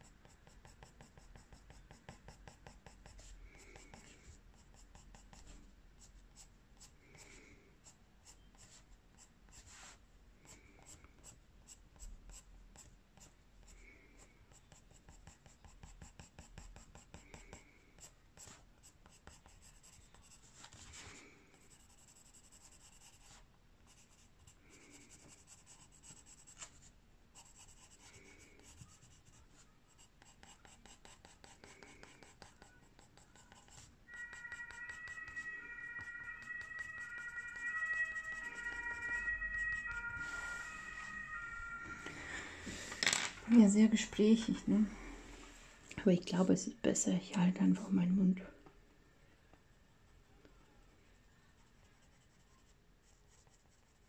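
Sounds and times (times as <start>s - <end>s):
pencil scratching on paper: 0.0s - 26.8s, 27.4s - 40.2s, 51.6s - 54.0s
faint short tone: 33.4s - 45.8s.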